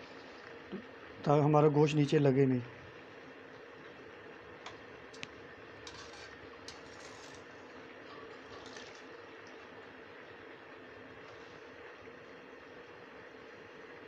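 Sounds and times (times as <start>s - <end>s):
skimmer clinking and scraping pans: 5.8s - 9.1s.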